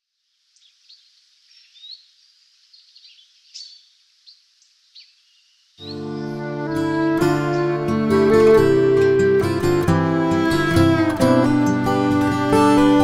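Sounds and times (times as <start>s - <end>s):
soft steady hiss: 0.0s - 7.7s
bird calls: 0.6s - 6.4s.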